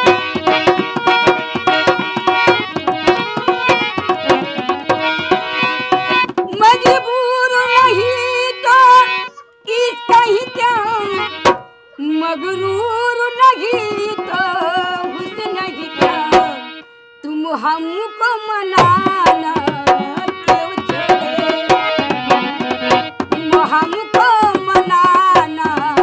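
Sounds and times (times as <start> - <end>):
barrel drum played by hand: 0.0 - 7.2, 11.2 - 11.7, 13.6 - 16.7, 18.8 - 26.0
woman singing folk song: 6.5 - 11.3, 12.0 - 16.6, 17.2 - 21.4, 23.4 - 26.0.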